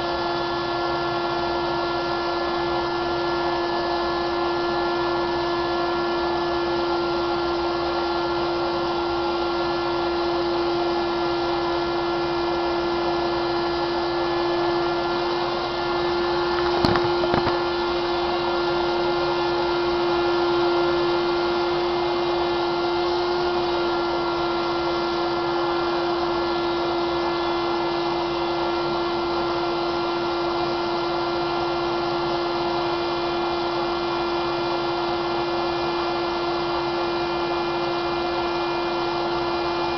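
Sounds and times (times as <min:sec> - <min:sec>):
electric blower motor whining: 0:12.2 - 0:29.9
brief knock: 0:16.6 - 0:17.7.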